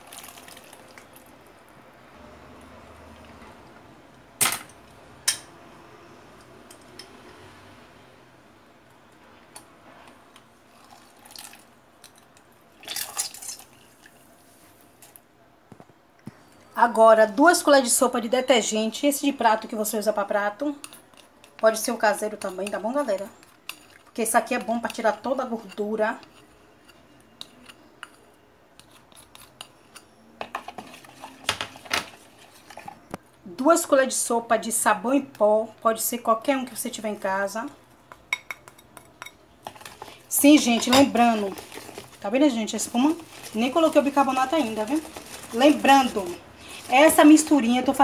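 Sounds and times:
juice dripping into plastic bowl: 0:00.0 - 0:01.3, 0:10.7 - 0:11.7
plastic spatula stirring in bowl: 0:30.4 - 0:33.0, 0:39.6 - 0:48.0.

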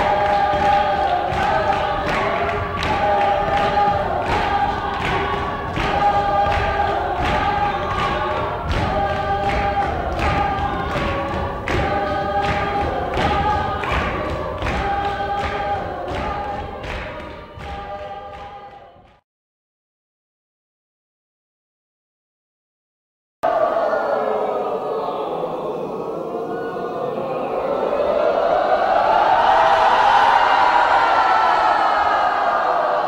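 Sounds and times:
group of voices singing: 0:00.0 - 0:19.2, 0:23.4 - 0:33.0
hand claps: 0:00.0 - 0:19.2.

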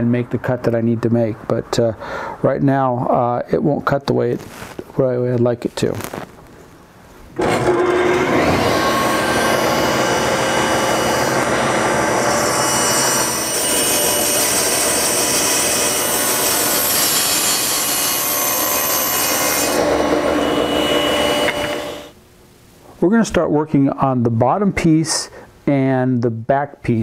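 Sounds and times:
saw blade cutting board: 0:07.4 - 0:22.1
table saw motor running: 0:07.4 - 0:22.1.

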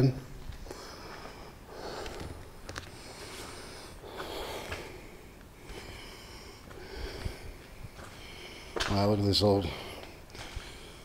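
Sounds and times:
person breathing heavily: 0:00.6 - 0:11.0.

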